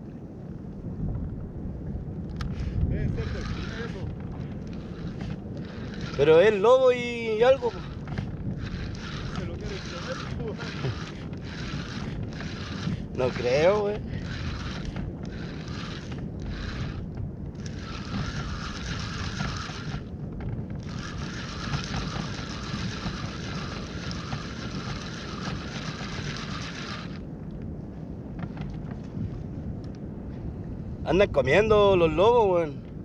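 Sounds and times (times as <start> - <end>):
wind and water noise: 0.0 - 33.0
fishing reel whirring: 2.4 - 27.3.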